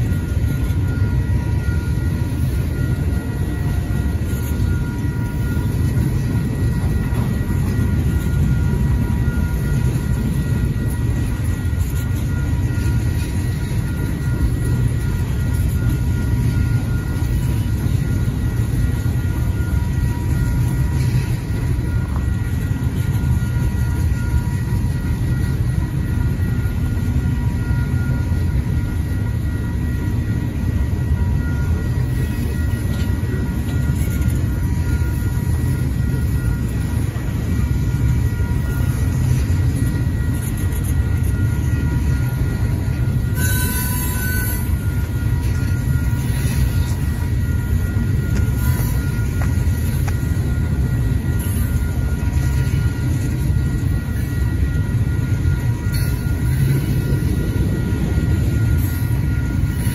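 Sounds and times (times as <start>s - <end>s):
train wheels rumbling on rail: 0.0s - 59.9s
wheel squeal: 31.1s - 59.9s
sharp wheel screech: 43.2s - 47.2s, 48.4s - 50.0s.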